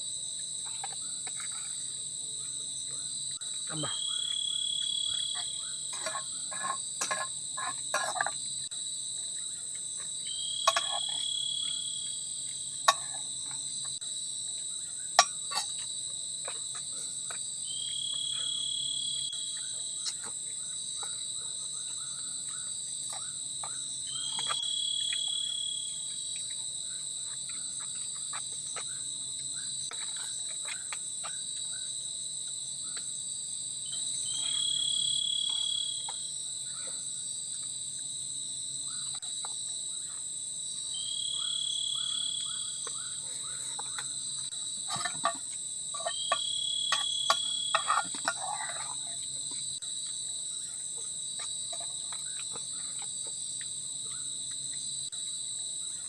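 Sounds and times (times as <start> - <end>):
repeating insect call: 0.0 - 56.0
insects shrilling: 3.3 - 31.9, 40.9 - 55.1.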